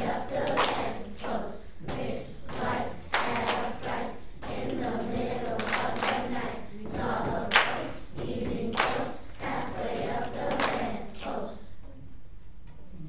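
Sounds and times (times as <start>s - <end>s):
children's choir singing: 0.0s - 11.8s
sharp claps: 0.4s - 1.4s, 2.4s - 11.5s.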